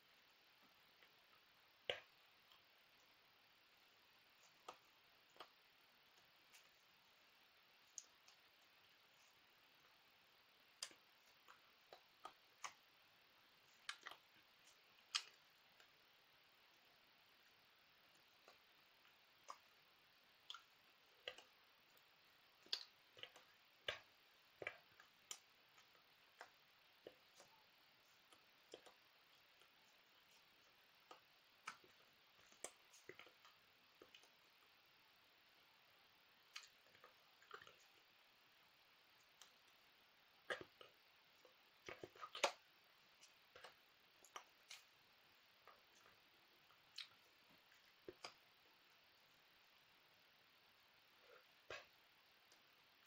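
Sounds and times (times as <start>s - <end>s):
faint irregular clicks: 0.1s - 53.0s
soft hand and mouth clicks: 48.0s - 48.4s.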